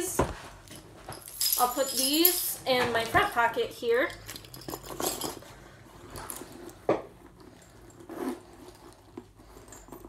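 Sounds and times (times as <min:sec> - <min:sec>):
bag rustling: 0:04.2 - 0:10.0.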